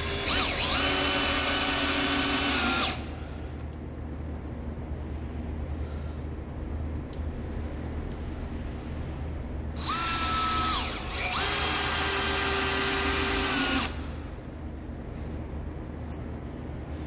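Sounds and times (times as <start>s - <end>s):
cordless drill boring into wood: 0.0s - 3.0s, 9.8s - 14.0s.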